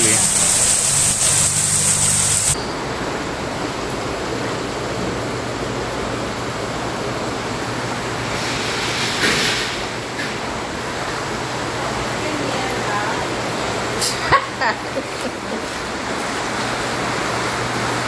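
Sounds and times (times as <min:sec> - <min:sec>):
car engine humming: 0:00.0 - 0:02.6
heavy rain hissing: 0:00.0 - 0:03.1
floodwater rushing across floor: 0:10.8 - 0:18.0.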